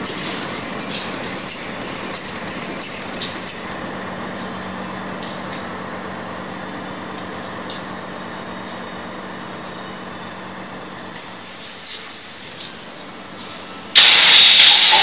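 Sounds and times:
sharp clicks and clatters: 0.0s - 4.0s
diesel machinery running: 0.0s - 15.0s.

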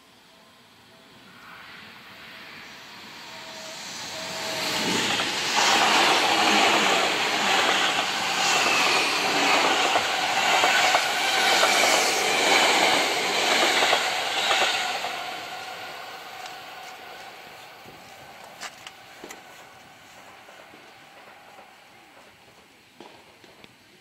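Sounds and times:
train rumble passing: 0.7s - 23.4s.

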